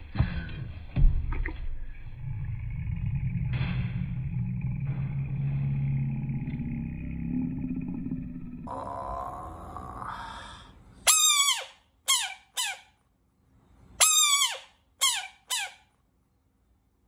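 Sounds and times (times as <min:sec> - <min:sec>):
faint low sound: 0:00.0 - 0:10.9.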